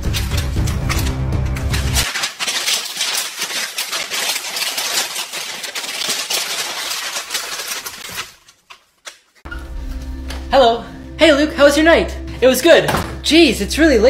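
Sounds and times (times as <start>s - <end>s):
paper sheets rustling: 0.0s - 9.5s.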